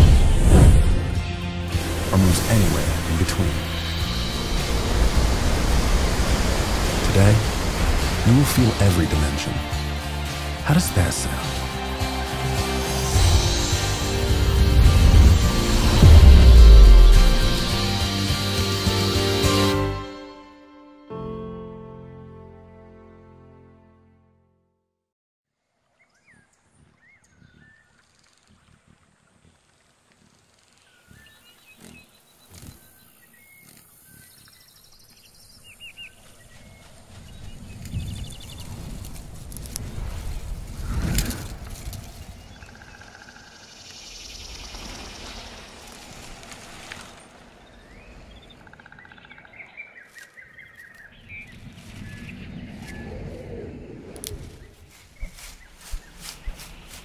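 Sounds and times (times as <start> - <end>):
leaves rustling in the wind: 1.8 - 8.4, 25.6 - 57.0
small birds chirping and trilling: 26.0 - 29.0, 30.2 - 39.2, 41.5 - 46.2, 47.2 - 57.0.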